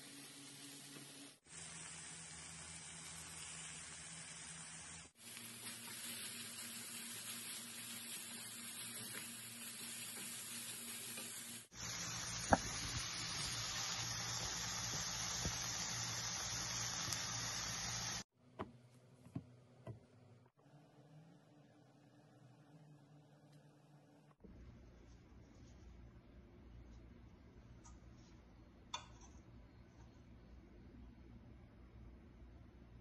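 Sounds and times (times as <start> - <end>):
food sizzling in hot oil: 0.0 - 18.3.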